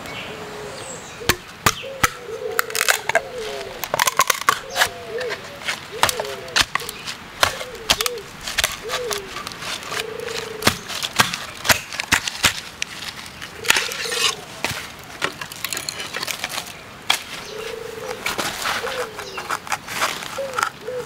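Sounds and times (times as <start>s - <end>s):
low bird call: 0.0s - 11.0s, 17.4s - 19.6s
bamboo cracking and splintering: 1.3s - 17.5s, 18.1s - 21.0s.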